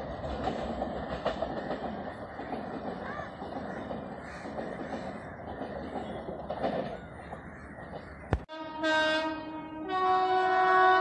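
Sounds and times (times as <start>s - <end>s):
rumbling railway noise: 0.0s - 11.0s
locomotive horn: 8.5s - 11.0s.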